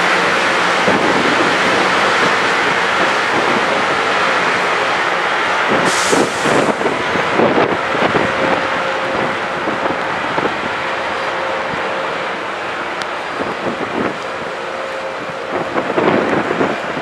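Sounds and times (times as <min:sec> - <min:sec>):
rail grinder train grinding: 0:00.0 - 0:17.0.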